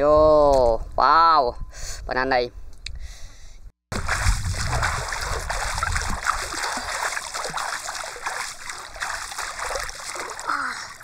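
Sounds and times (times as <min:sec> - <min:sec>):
swimmer splashing water: 0:03.9 - 0:11.0.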